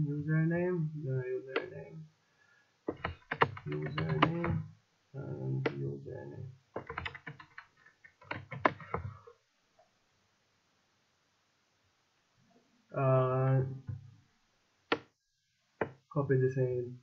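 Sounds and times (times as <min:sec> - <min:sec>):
indistinct voice: 0:00.0 - 0:02.1, 0:03.7 - 0:06.5
keyboard key clicks: 0:02.9 - 0:04.6, 0:06.8 - 0:09.1.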